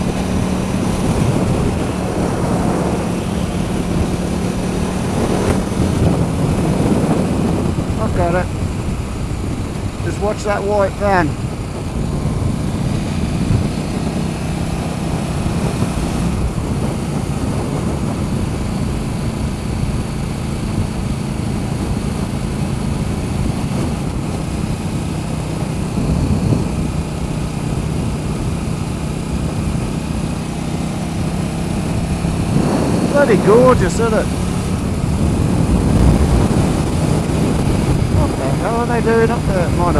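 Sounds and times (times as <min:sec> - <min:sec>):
motorcycle engine cruising: 0:00.0 - 0:39.9
road and wind noise: 0:00.0 - 0:39.9.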